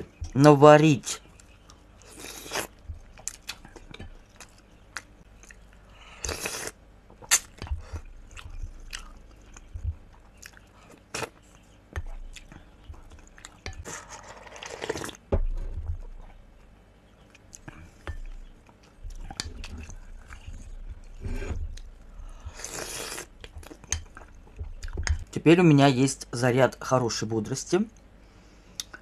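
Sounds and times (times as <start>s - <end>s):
person chewing: 1.2s - 25.2s
person slurping soup: 6.2s - 6.8s, 22.4s - 23.3s.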